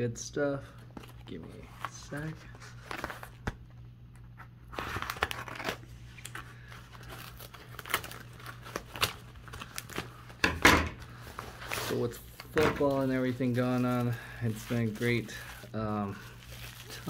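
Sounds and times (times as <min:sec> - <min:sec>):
package crinkling and tearing: 0:04.7 - 0:17.0.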